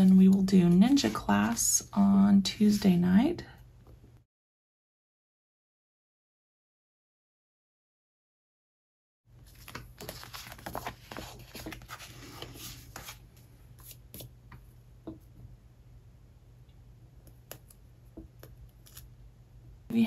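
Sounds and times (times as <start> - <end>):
faint steady hum: 9.3 - 20.0
sticker sheet crinkling: 9.5 - 13.2.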